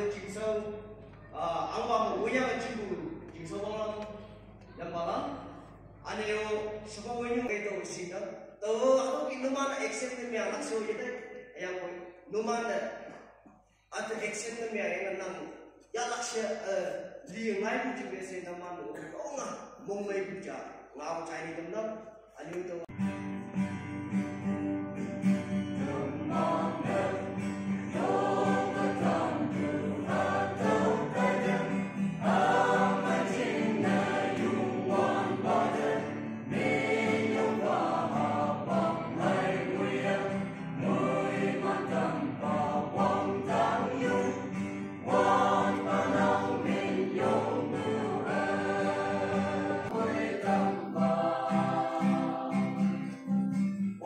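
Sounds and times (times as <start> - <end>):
choir singing a hymn: 0.0 - 1.0, 25.2 - 53.4.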